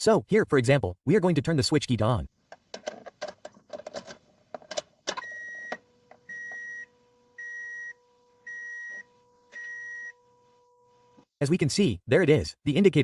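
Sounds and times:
dashboard warning chime beeping: 5.2s - 11.0s.

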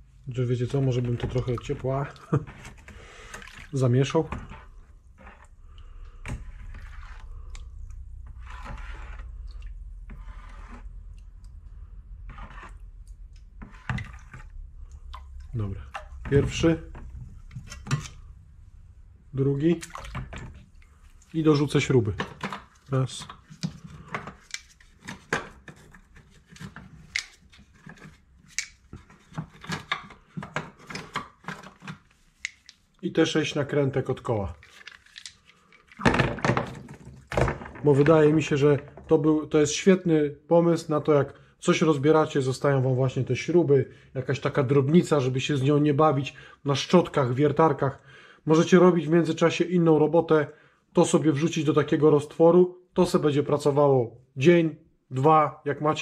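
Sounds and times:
water sloshing in a bowl: 0.6s - 18.4s, 19.4s - 25.5s.

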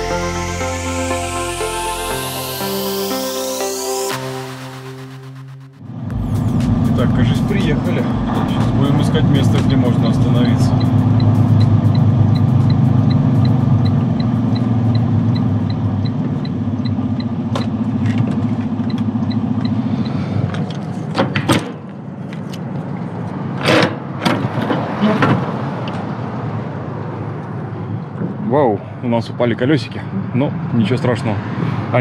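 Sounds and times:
diesel truck engine running: 5.4s - 21.2s
even ticking: 6.1s - 17.3s.

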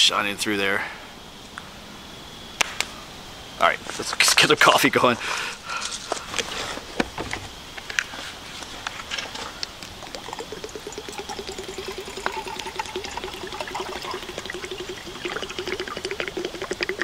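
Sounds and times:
water pouring into metal mug: 10.0s - 17.0s.

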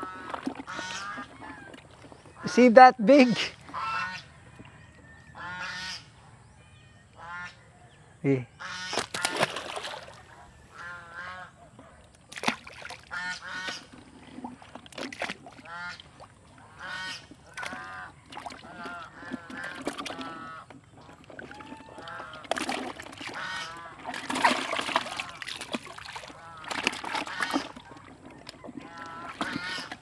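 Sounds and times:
splashes in bucket of water: 0.0s - 2.4s, 8.8s - 10.3s, 12.3s - 30.0s
waterfowl calling: 0.0s - 6.2s, 8.5s - 9.5s, 10.2s - 12.1s, 13.0s - 14.1s, 15.6s - 30.0s.

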